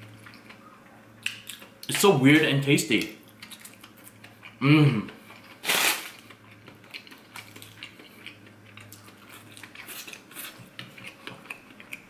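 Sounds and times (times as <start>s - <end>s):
person chewing crunchy food: 3.2s - 12.0s.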